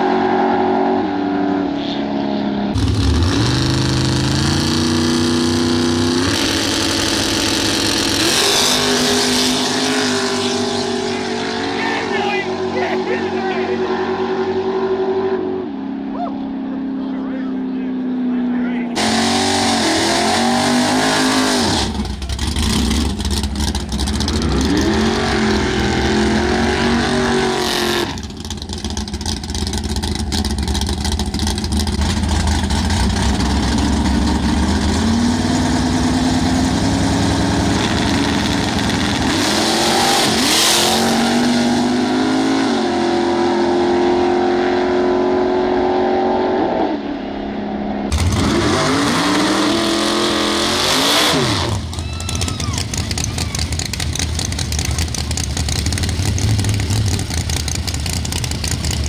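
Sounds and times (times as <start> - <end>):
race car engines revving: 0.0 - 59.0.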